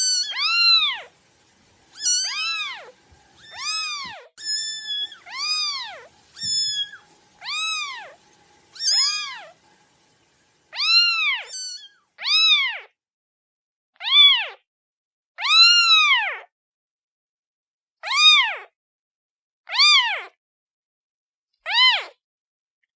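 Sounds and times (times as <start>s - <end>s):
kitten meowing: 0.0s - 1.1s, 1.9s - 8.1s, 8.8s - 9.4s, 10.7s - 12.9s.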